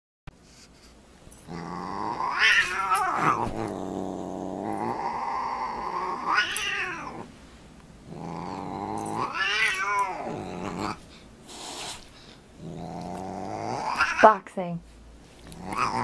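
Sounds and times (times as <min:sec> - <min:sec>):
cat growling: 0:01.4 - 0:07.3, 0:08.0 - 0:11.0, 0:12.6 - 0:14.3, 0:15.4 - 0:16.0
cat yowling: 0:02.1 - 0:03.5, 0:05.0 - 0:07.2, 0:09.2 - 0:10.4, 0:13.9 - 0:14.2.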